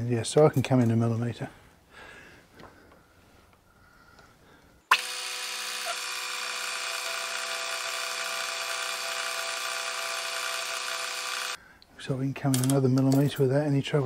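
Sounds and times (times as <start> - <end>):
metal lathe whining: 4.9 - 11.6.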